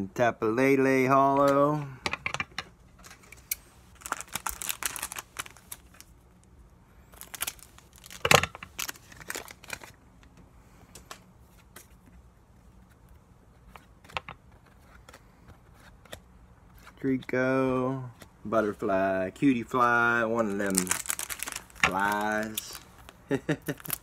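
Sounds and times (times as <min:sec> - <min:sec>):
trading cards clicking and rustling: 0:01.4 - 0:06.1, 0:12.8 - 0:17.0, 0:19.7 - 0:24.0.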